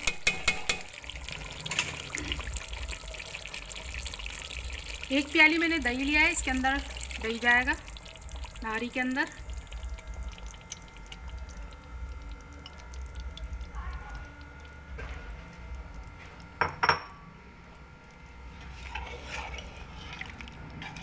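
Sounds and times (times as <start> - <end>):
steady low hum: 4.6 - 21.0
ladle scraping while mixing: 18.4 - 21.0.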